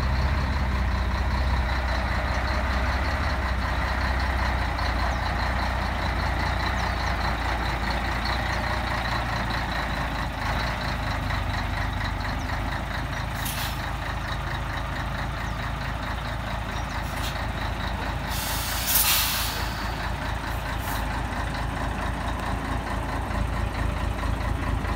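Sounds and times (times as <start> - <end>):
diesel truck engine running: 0.0 - 24.9
air brake hisses: 13.4 - 13.8, 18.2 - 20.0.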